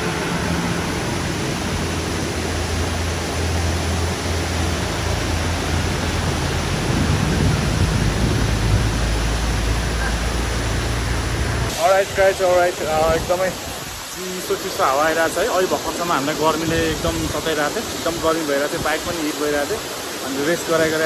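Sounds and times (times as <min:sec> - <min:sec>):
wind rumble on microphone: 0:00.0 - 0:11.7
waterfall rushing: 0:00.0 - 0:21.0.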